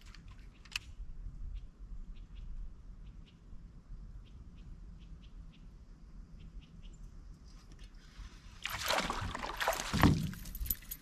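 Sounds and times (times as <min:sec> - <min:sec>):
fish splashing at water surface: 0:08.6 - 0:10.6.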